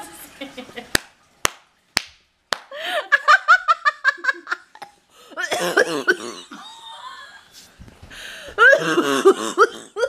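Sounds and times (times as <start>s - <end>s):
sharp smacks: 1.0s - 2.7s
woman laughing: 2.7s - 4.9s, 5.5s - 7.5s.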